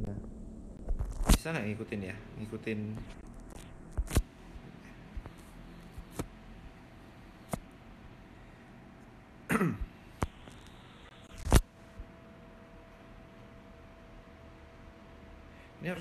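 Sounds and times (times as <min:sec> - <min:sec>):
man clearing his throat: 0:09.5 - 0:09.9
man coughing: 0:09.5 - 0:09.9.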